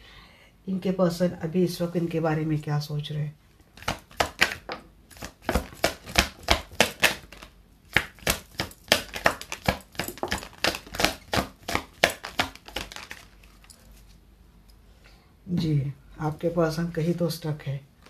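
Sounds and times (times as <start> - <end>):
cards being shuffled: 3.8 - 14.2.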